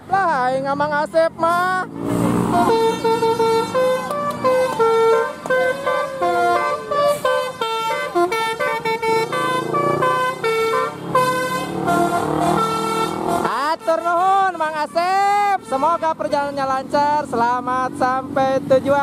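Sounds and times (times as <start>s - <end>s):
bus multi-tone air horn melody: 2.4s - 16.8s.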